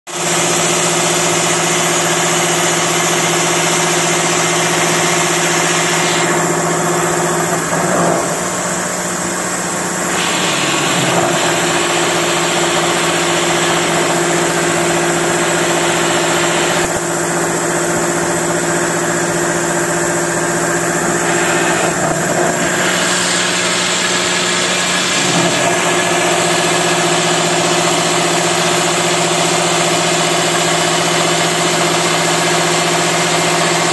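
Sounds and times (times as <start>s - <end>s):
milling machine spindle hum: 0.2s - 33.9s
hiss of metal cutting: 7.6s - 13.9s, 20.6s - 27.8s.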